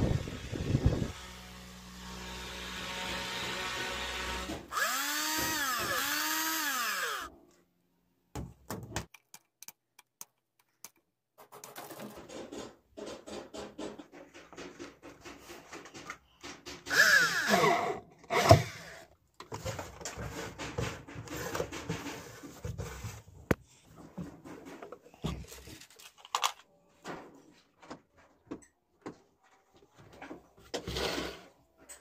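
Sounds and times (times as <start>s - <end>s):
cordless drill motor whine: 0.1s - 7.3s, 16.9s - 18.6s
plastic parts rubbing: 19.4s - 26.7s.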